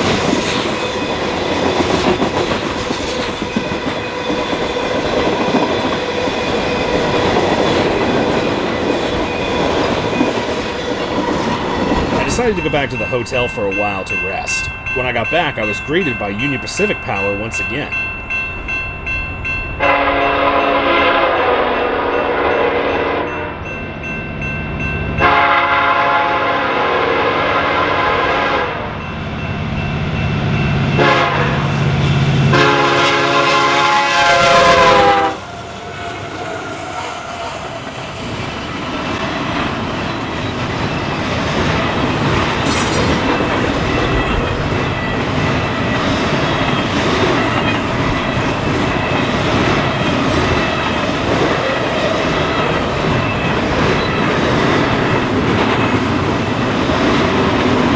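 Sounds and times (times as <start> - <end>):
train wheels rumbling on rails: 0.0 - 26.4, 29.0 - 57.9
locomotive air horn blasts: 19.8 - 23.5, 25.2 - 28.9, 31.0 - 31.6, 32.5 - 35.4.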